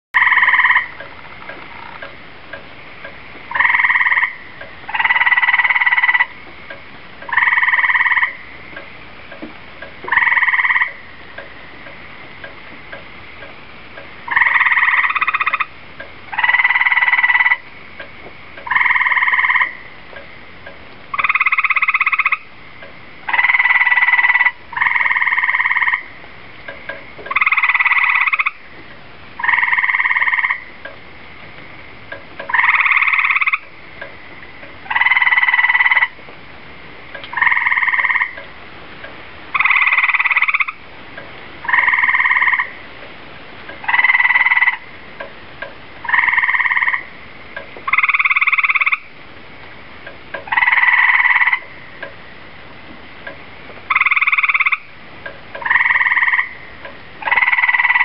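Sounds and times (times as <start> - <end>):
tree frogs calling: 0.2 - 58.0.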